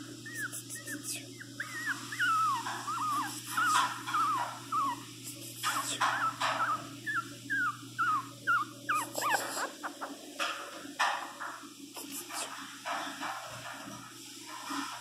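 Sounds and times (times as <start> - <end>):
puppy whimpering: 0.1 - 5.1, 5.7 - 10.2.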